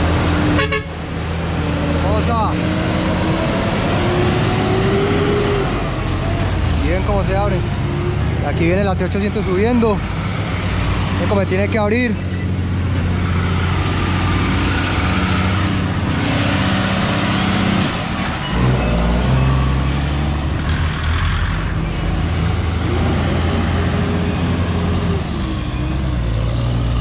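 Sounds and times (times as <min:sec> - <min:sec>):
truck diesel engine labouring: 0:00.0 - 0:27.0.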